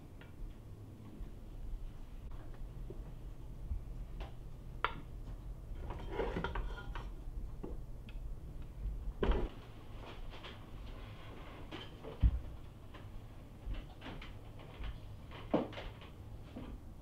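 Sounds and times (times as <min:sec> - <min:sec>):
spatula scraping metal pot: 0:05.8 - 0:07.1.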